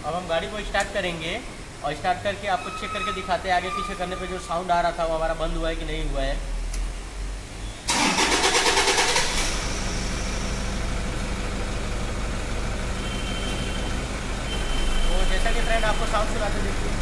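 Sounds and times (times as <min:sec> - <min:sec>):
engine starter cranking: 0:07.9 - 0:10.1
car engine idling: 0:07.9 - 0:17.0.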